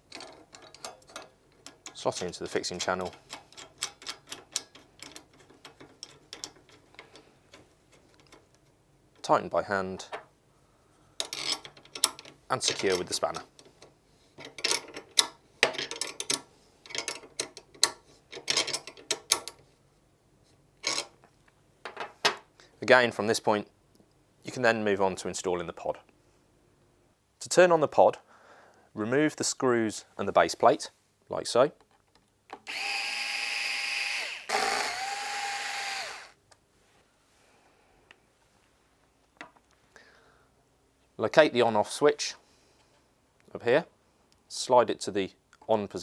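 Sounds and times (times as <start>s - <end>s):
spanner clicking on bolt: 3.0s - 7.1s
electric screwdriver running: 32.7s - 36.4s.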